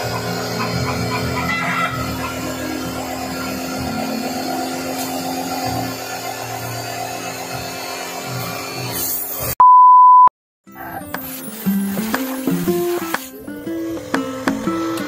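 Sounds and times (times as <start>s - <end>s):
pressure washer motor hum: 0.0s - 9.5s, 11.1s - 15.0s
water jet hissing on concrete: 0.0s - 9.6s, 11.1s - 15.0s
electronic beep: 9.6s - 10.3s.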